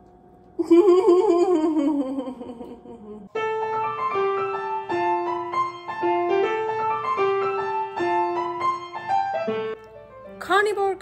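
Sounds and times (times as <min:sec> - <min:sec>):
piano melody: 0:03.3 - 0:11.0.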